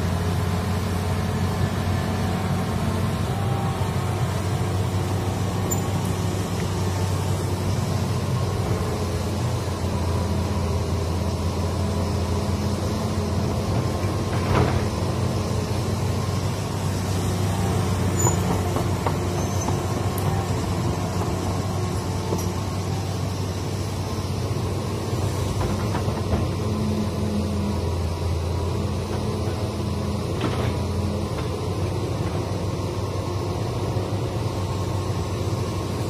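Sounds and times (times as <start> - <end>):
excavator diesel engine running: 0.0 - 36.0.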